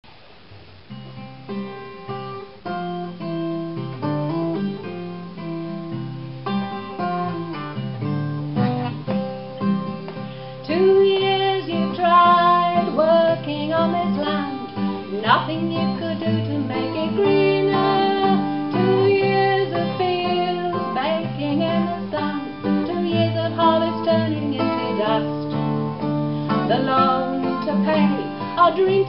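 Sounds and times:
acoustic guitar picking: 0:00.6 - 0:29.0
person singing: 0:10.6 - 0:29.0.

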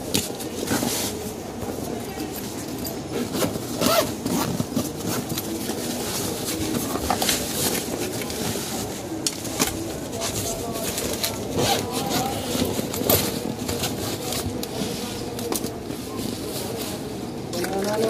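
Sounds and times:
bag rustling: 0:00.1 - 0:17.3
zipper pulled open: 0:03.2 - 0:05.3.

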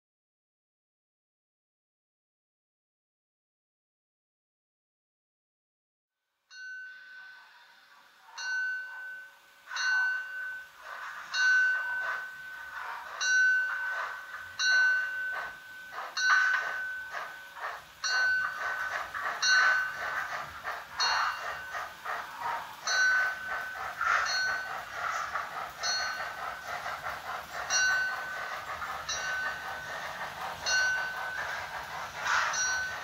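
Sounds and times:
model steam locomotive chuffing: 0:06.6 - 0:33.0.

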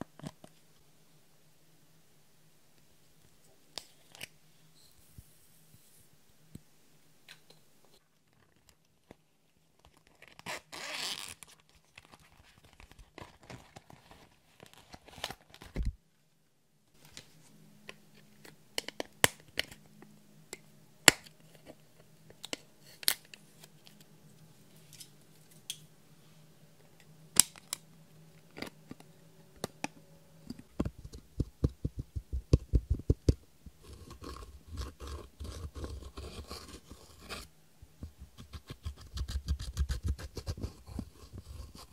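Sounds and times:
tool tapping and scraping powder: 0:30.5 - 0:41.9.

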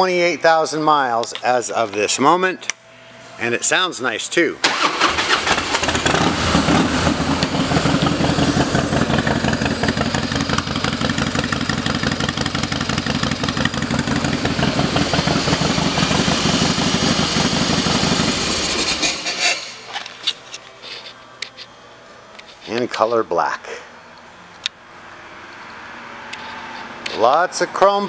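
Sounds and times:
motorcycle engine starting and idling: 0:04.6 - 0:19.3.

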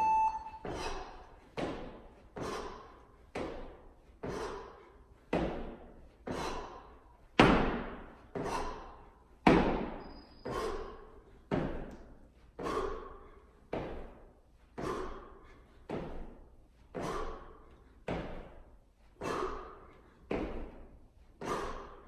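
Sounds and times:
feet thudding on gym floor: 0:18.0 - 0:18.6, 0:20.3 - 0:21.6.

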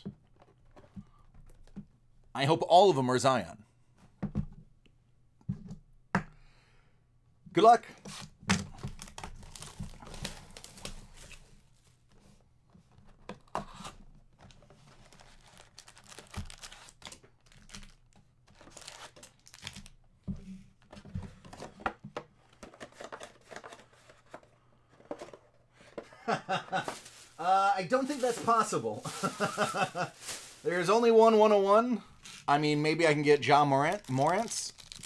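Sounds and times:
plastic wrap crinkling and tearing: 0:08.8 - 0:11.2, 0:15.0 - 0:20.0, 0:26.8 - 0:31.1, 0:33.5 - 0:35.0
foil packs set down: 0:26.7 - 0:30.9.

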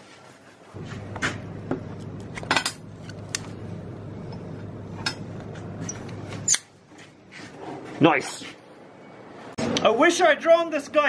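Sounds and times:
low machine hum: 0:00.8 - 0:06.5.

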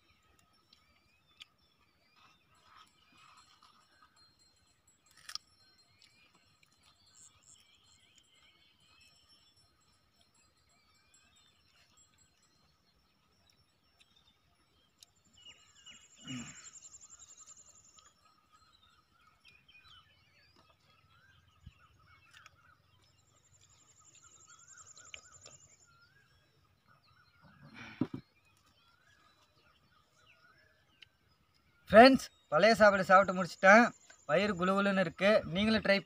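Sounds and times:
insect trill: 0:00.0 - 0:28.0
faint bird calls: 0:15.5 - 0:18.2, 0:19.9 - 0:30.8.

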